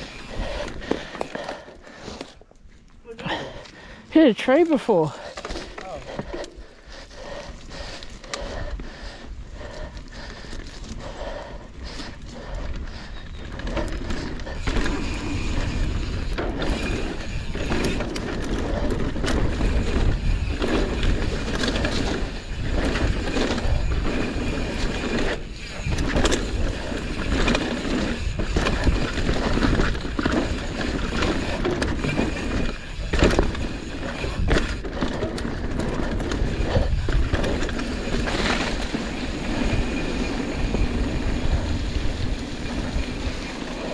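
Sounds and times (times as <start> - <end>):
bike rattling: 0.0 - 43.9
bike tyres rolling over dirt: 0.0 - 43.9
wind rumble on microphone: 12.4 - 43.9.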